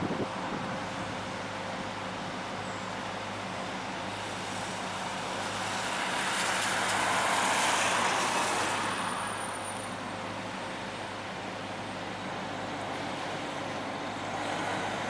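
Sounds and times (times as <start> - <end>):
low engine hum: 0.0 - 15.0
vehicle passing on wet road: 4.0 - 15.0.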